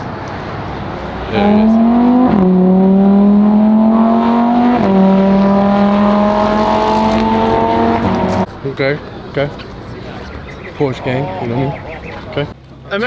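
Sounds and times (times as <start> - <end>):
sports car engine accelerating past: 0.5 - 8.5.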